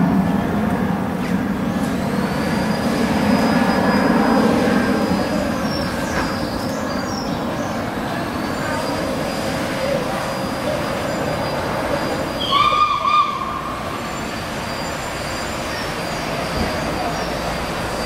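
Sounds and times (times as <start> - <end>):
steam train rumbling: 0.0 - 18.0
steam locomotive whistle: 12.4 - 14.1.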